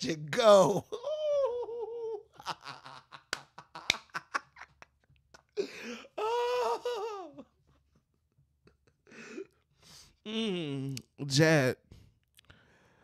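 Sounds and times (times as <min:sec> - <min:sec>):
woman laughing: 0:01.0 - 0:07.4.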